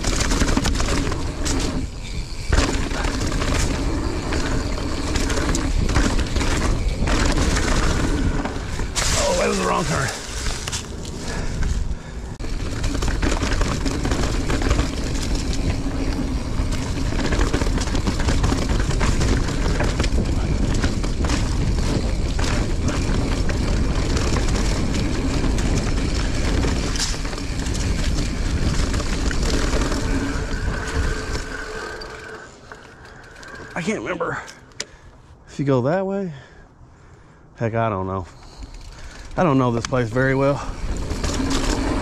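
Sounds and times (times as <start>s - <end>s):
bike rattling and knocking: 0.0s - 33.9s, 38.4s - 42.0s
bike tyres rumbling on dirt: 0.0s - 34.4s, 38.2s - 42.0s.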